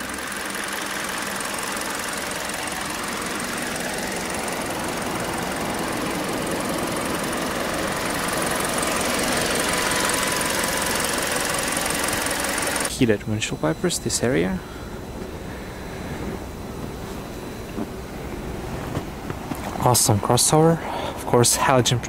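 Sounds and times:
car engine idling: 0:00.0 - 0:19.8.

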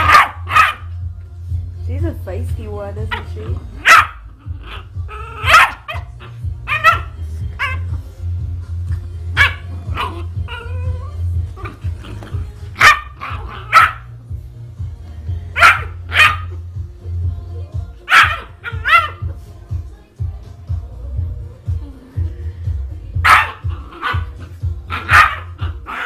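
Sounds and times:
dog barking: 0:00.0 - 0:00.9, 0:03.1 - 0:04.8, 0:05.4 - 0:06.1, 0:06.7 - 0:07.8, 0:09.4 - 0:10.6, 0:12.8 - 0:14.2, 0:15.6 - 0:16.6, 0:18.1 - 0:19.3, 0:23.2 - 0:26.0
background music: 0:00.0 - 0:26.0.

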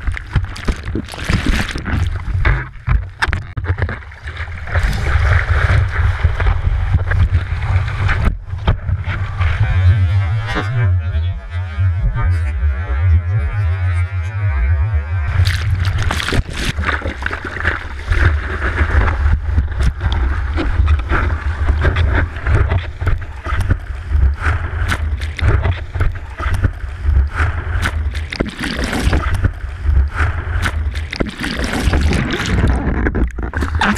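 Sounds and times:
water rushing and splashing: 0:00.0 - 0:08.5, 0:15.3 - 0:33.9.

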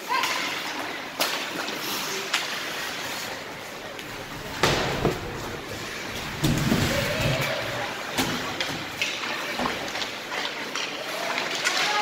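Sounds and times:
crowd chatter: 0:00.0 - 0:12.0
skates scraping ice: 0:00.0 - 0:12.0
hockey sticks and puck knocking: 0:04.0 - 0:11.7.

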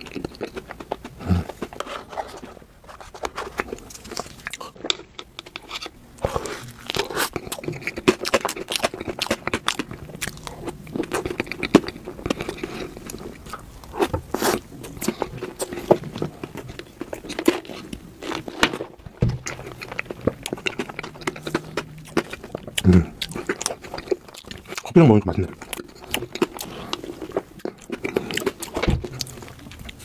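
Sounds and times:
person chewing cake: 0:00.0 - 0:30.0.

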